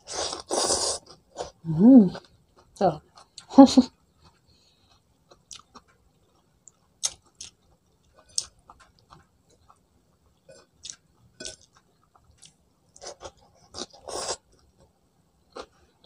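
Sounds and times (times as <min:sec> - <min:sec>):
chewing and lip smacks: 0:04.2 - 0:09.8, 0:10.8 - 0:14.7.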